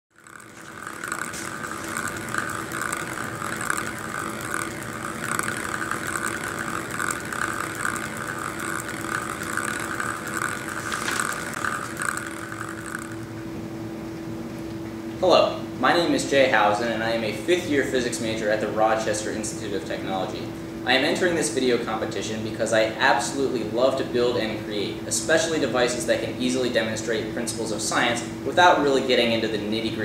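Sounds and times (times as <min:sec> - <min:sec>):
small clicks of ball on electrodes: 0:00.1 - 0:13.4
ball rolling whir: 0:00.1 - 0:15.0, 0:15.8 - 0:30.0
low steady hum: 0:00.1 - 0:30.0.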